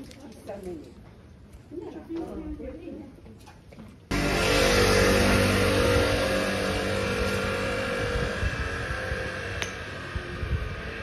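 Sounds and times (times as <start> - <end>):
motor scooter passing: 4.1 - 11.0.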